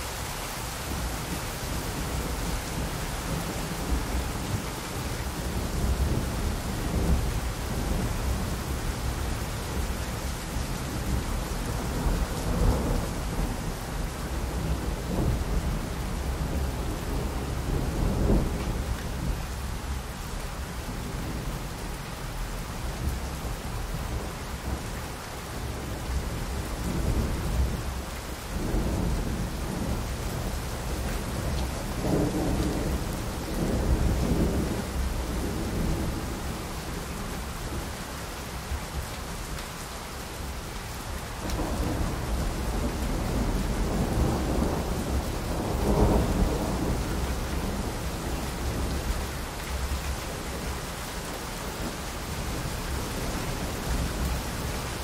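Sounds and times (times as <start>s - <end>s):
steady rain: 0.0s - 55.0s
rolling thunder: 41.5s - 49.1s.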